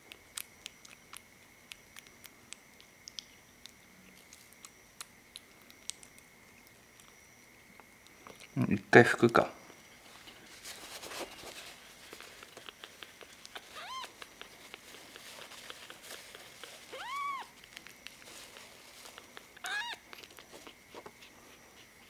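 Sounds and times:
kitten mewing: 0:12.6 - 0:14.3, 0:16.9 - 0:17.6, 0:19.3 - 0:20.2.

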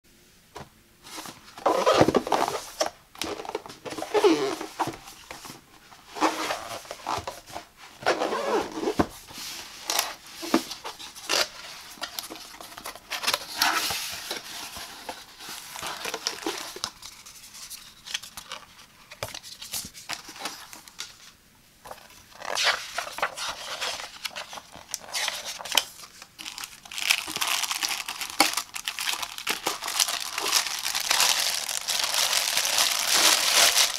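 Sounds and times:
cardboard scraping and rustling: 0:01.0 - 0:20.8, 0:21.9 - 0:33.9
plastic wrap crinkling: 0:11.2 - 0:21.0, 0:21.9 - 0:33.9.

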